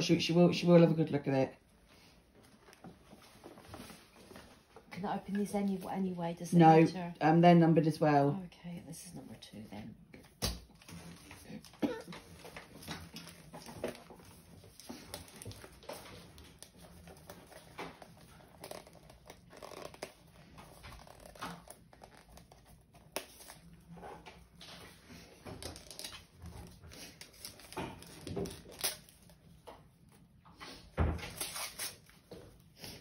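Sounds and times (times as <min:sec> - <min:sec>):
wrapping paper crinkling and tearing: 0:10.7 - 0:23.9, 0:24.6 - 0:29.6, 0:31.2 - 0:32.3.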